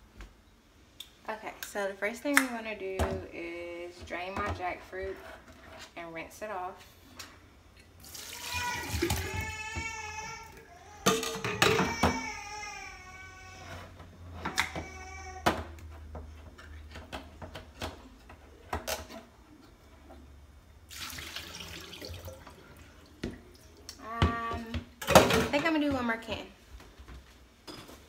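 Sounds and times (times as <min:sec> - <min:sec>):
sink tap running water: 0:20.9 - 0:22.6.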